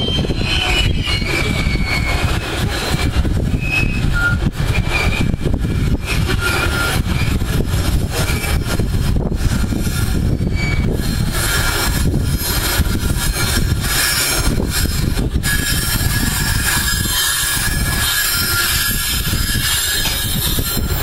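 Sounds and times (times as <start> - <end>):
short high squeals: 0.0 - 7.6, 10.2 - 11.7
train low rumble: 0.0 - 21.0.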